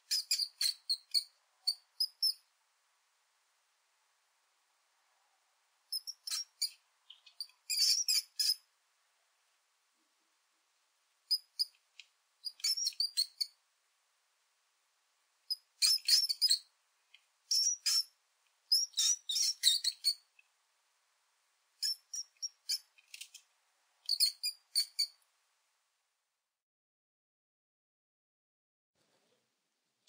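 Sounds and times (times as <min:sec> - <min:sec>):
mouse squeaking: 0:00.0 - 0:02.5, 0:05.9 - 0:08.7, 0:11.3 - 0:11.8, 0:12.4 - 0:13.6, 0:15.5 - 0:16.7, 0:17.5 - 0:20.3, 0:21.8 - 0:23.4, 0:24.1 - 0:25.2.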